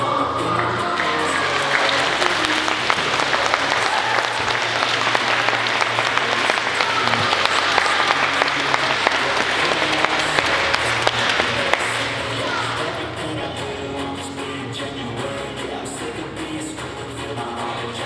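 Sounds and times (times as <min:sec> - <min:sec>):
faint music: 0:00.0 - 0:18.0
audience applauding: 0:00.6 - 0:13.1.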